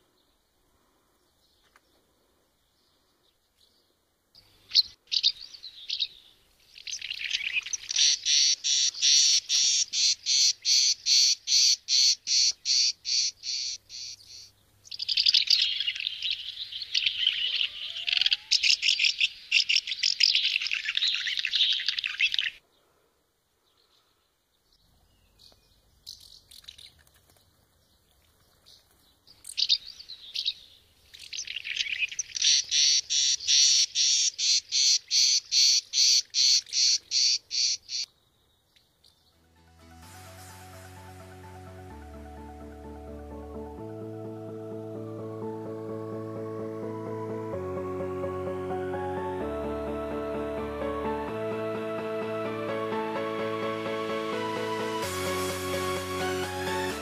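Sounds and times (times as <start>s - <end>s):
house martins chirping: 4.4s - 22.6s, 28.2s - 39.4s.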